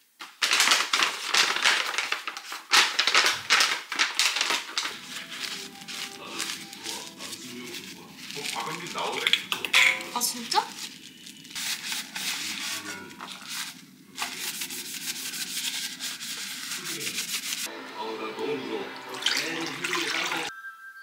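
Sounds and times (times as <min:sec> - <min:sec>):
paper towel scrubbing metal container: 0:00.5 - 0:17.7, 0:19.0 - 0:20.5
milk pouring into jug: 0:18.5 - 0:20.5.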